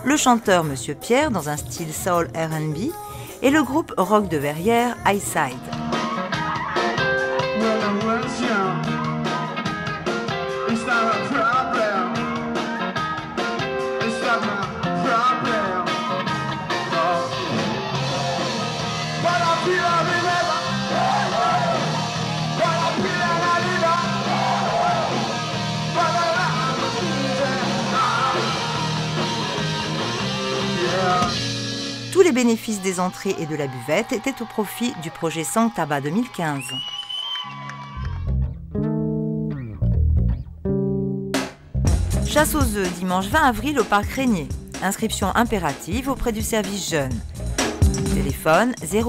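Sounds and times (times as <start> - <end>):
live rock band playing: 5.4 - 32.2, 38.8 - 44.9, 47.0 - 48.6
person singing: 6.8 - 9.4, 10.4 - 17.9, 25.9 - 31.4.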